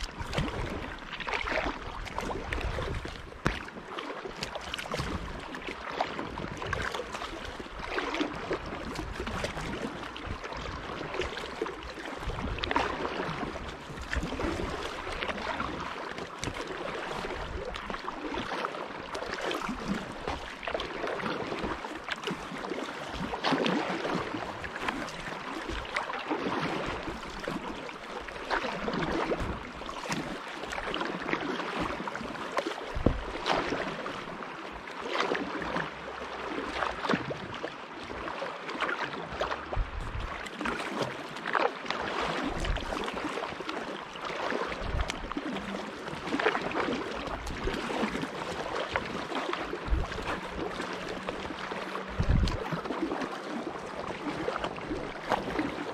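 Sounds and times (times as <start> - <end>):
low wind rumble on microphone: 0.0 - 18.5, 32.9 - 34.0, 39.3 - 40.5, 42.3 - 43.3, 44.8 - 55.9
kayak paddle strokes in water: 0.0 - 55.9
water splashing along hull: 0.0 - 55.9.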